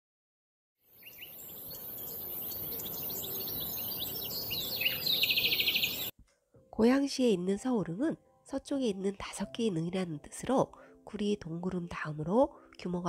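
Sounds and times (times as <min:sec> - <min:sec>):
birds chirping and twittering: 0:00.9 - 0:06.1
steady background hiss: 0:00.9 - 0:06.1
fast bird trill: 0:01.0 - 0:06.1.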